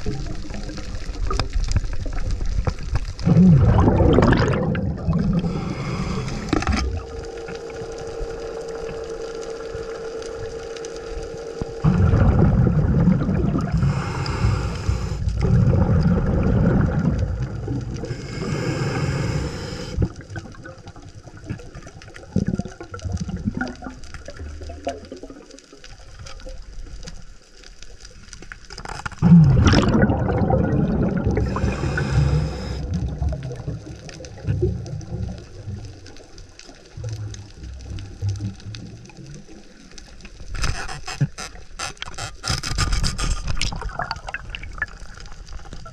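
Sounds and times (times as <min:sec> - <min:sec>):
low watery rumble: 0:00.0 - 0:45.9
diver bubbling exhalations: 0:03.2 - 0:07.1, 0:11.8 - 0:20.6, 0:29.2 - 0:35.3.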